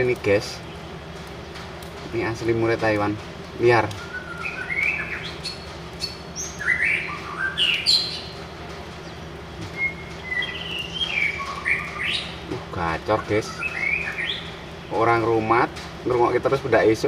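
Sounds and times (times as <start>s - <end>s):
bird singing whistled phrases: 4.0s - 8.4s, 9.7s - 12.4s, 13.1s - 14.5s.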